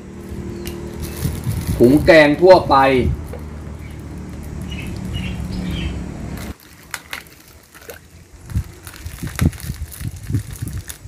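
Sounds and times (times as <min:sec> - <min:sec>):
plastic bag crinkling: 0:00.7 - 0:01.9, 0:03.2 - 0:05.6, 0:06.4 - 0:11.0.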